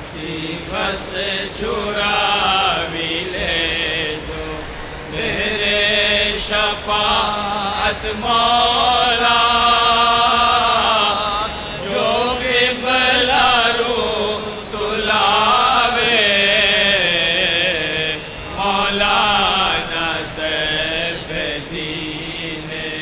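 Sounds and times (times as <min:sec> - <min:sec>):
person chanting: 0:00.0 - 0:23.0.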